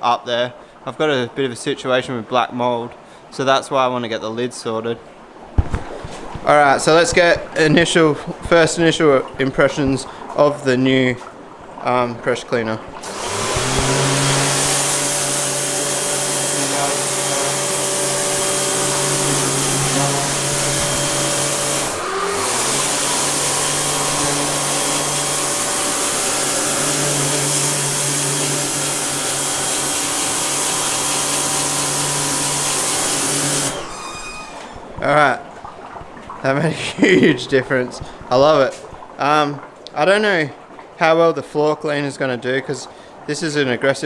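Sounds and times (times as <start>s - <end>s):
pressure washer motor humming: 13.0s - 34.7s
water jet hissing on concrete: 13.0s - 35.4s.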